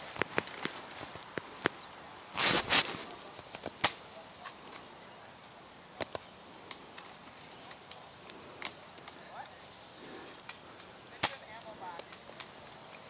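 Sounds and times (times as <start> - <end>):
footsteps in grass: 0.0 - 3.8
insects chirring: 0.0 - 13.0
tall grass rustling: 0.0 - 13.0.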